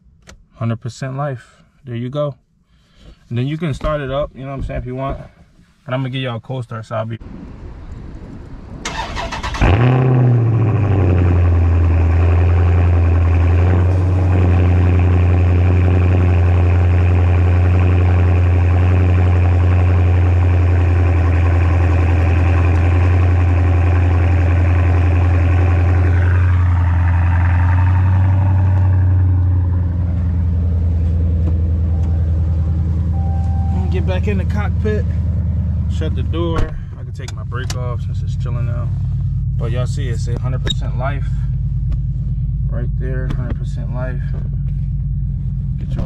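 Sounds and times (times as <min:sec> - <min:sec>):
car engine cranking and starting: 0:08.0 - 0:46.0
car engine idling loudly: 0:10.7 - 0:36.5.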